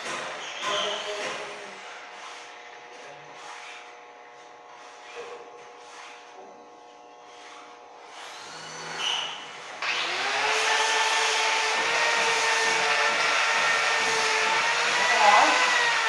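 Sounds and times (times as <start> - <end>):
angle grinder whining: 0.0 - 16.0
soft rubbing and handling: 2.0 - 6.6.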